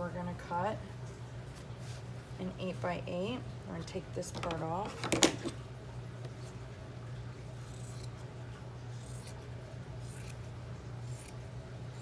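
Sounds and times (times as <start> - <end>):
steady low hum: 0.0 - 12.0
scissors snipping fabric: 10.0 - 10.4, 11.0 - 11.4.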